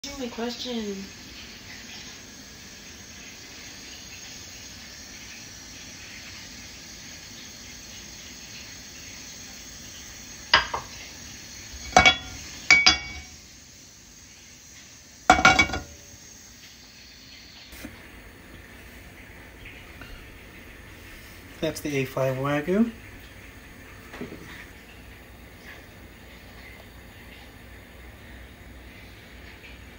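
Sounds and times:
steady hiss: 0:00.1 - 0:29.9
cookware clattering on stove grate: 0:10.5 - 0:11.0, 0:11.8 - 0:13.3, 0:15.3 - 0:16.0
glass bottle clinking: 0:10.6 - 0:10.9, 0:11.9 - 0:13.3, 0:15.3 - 0:16.0.

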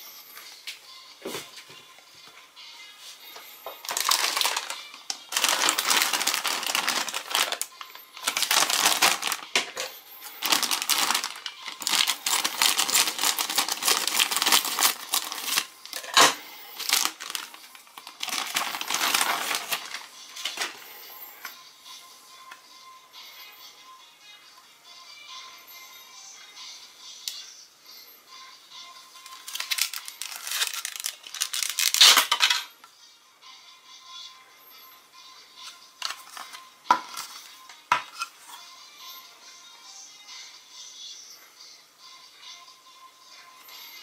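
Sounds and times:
plastic wrapper crinkling: 0:03.7 - 0:09.5, 0:10.2 - 0:20.8, 0:29.2 - 0:32.6, 0:36.0 - 0:37.5
plastic wrapper snapping: 0:03.8 - 0:09.4, 0:10.4 - 0:20.0, 0:29.3 - 0:32.6.

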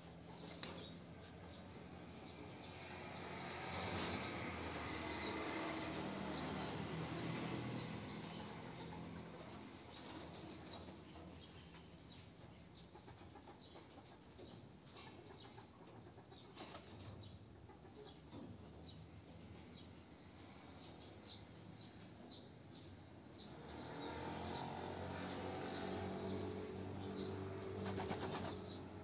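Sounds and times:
pigeon wing flaps: 0:27.8 - 0:28.6.

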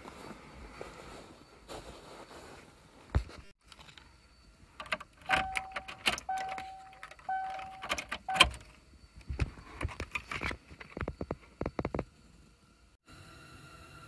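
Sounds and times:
car key jangling in ignition: 0:04.8 - 0:08.8
car warning chime beeps: 0:04.8 - 0:09.1.

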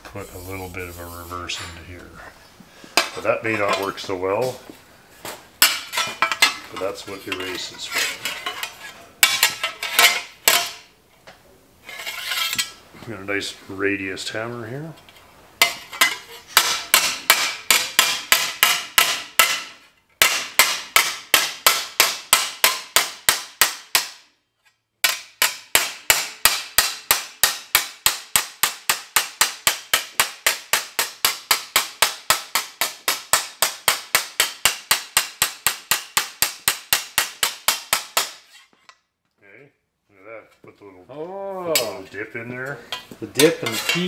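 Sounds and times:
hammer striking sheet metal: 0:15.6 - 0:24.3, 0:25.0 - 0:38.5.

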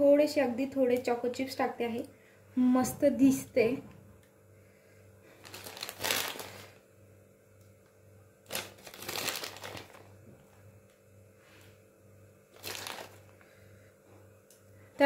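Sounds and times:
plastic packet crinkling: 0:05.4 - 0:06.8, 0:08.4 - 0:10.2, 0:12.5 - 0:13.4.

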